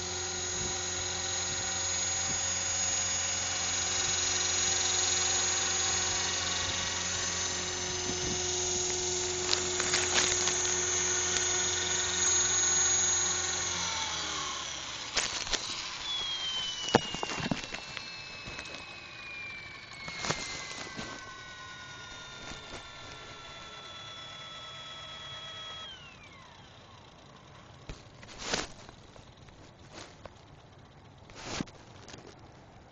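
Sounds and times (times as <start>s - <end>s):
model helicopter motor whine: 0.0s - 32.9s.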